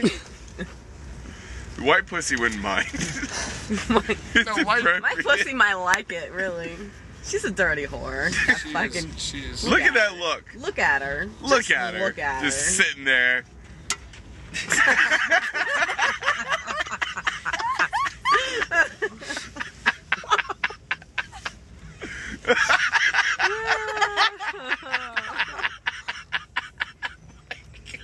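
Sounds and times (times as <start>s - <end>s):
people laughing and snickering: 2.8s - 5.4s, 14.5s - 28.0s.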